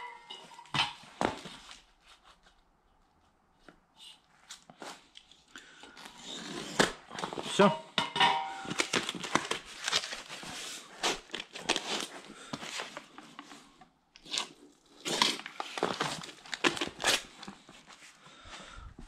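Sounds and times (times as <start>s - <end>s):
foil sheets rustling: 8.6s - 13.1s.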